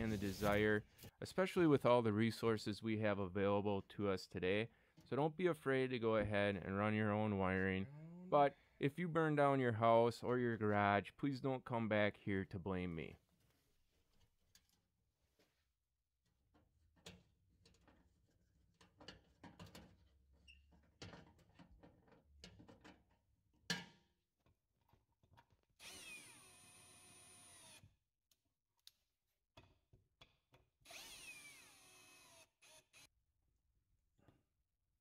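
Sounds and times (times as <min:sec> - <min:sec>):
power drill running: 0:25.8 - 0:27.8, 0:30.9 - 0:33.1.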